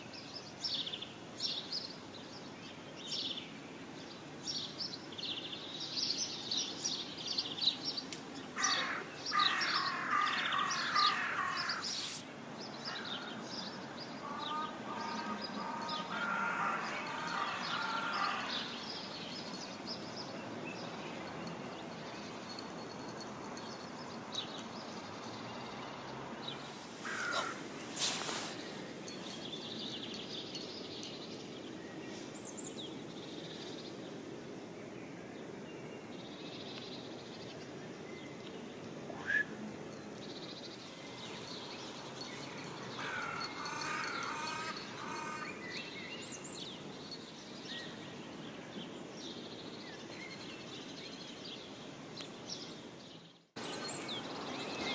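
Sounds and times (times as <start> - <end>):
birds calling: 5.4 - 34.0, 37.5 - 54.9
steady hiss: 11.5 - 16.2, 18.6 - 42.9.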